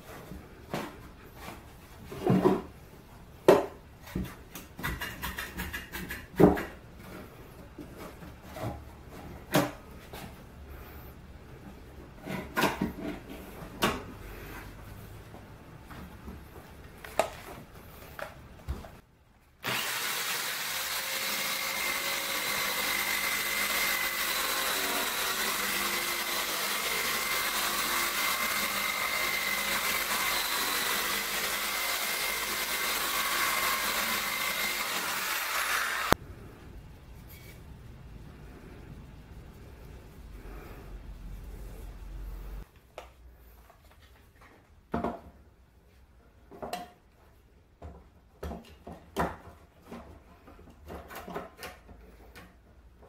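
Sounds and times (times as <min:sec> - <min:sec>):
electric drill routing wood: 0:19.6 - 0:36.2.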